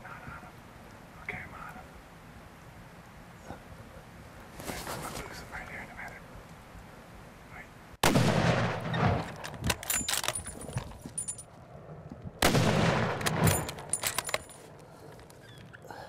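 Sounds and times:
shotgun shots: 8.0s - 10.4s, 12.4s - 14.5s
sharp metallic clicks and clatter: 9.2s - 11.4s, 13.1s - 14.6s.

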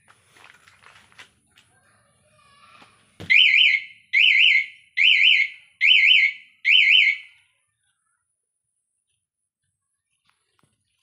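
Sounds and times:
electronic alarm siren warbling: 3.3s - 7.3s.

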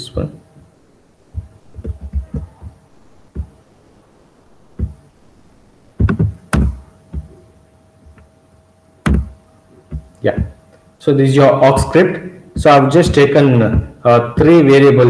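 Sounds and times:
keyboard and mouse knocks: 1.3s - 3.6s, 6.0s - 7.4s, 9.0s - 10.6s
thumps: 1.3s - 3.8s, 4.6s - 5.2s, 5.9s - 8.3s, 9.0s - 10.8s, 11.8s - 14.6s.

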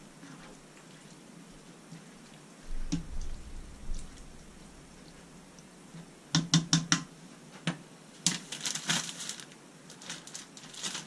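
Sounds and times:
plastic bag crinkling: 8.2s - 11.0s.

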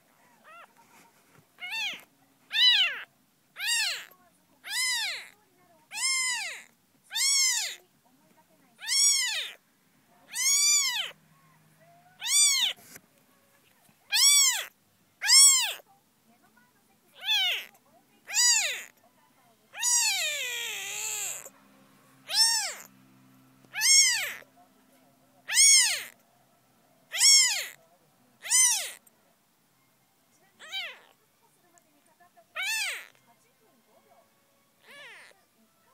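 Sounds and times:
kitten mewing: 0.2s - 0.8s, 1.6s - 7.8s, 8.8s - 9.6s, 10.3s - 11.2s, 11.8s - 13.0s, 14.1s - 15.8s, 17.2s - 18.9s, 19.7s - 21.5s, 22.2s - 22.9s, 23.7s - 24.5s, 25.4s - 26.2s, 27.1s - 27.8s, 28.4s - 29.0s, 30.6s - 31.2s, 32.5s - 33.2s, 34.8s - 35.4s.

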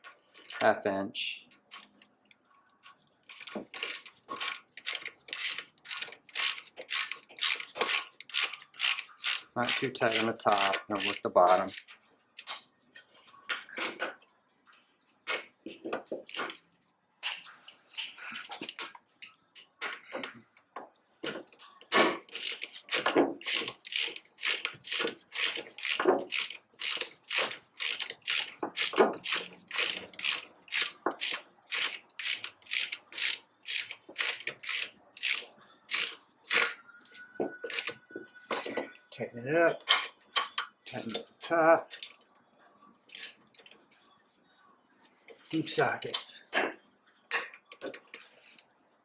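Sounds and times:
ratchet wrench clicking: 3.3s - 11.8s, 22.3s - 36.8s, 37.7s - 38.0s.

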